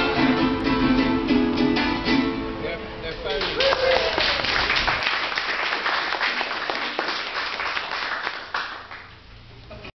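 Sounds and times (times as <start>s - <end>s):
audience applauding: 3.3s - 9.2s.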